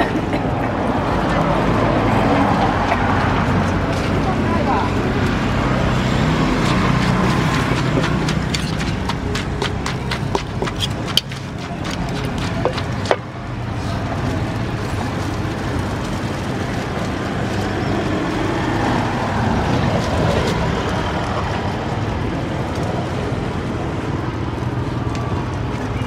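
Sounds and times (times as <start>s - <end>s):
engine-like rumble: 0.0s - 26.0s
pestle knocking in clay mortar: 6.5s - 13.3s.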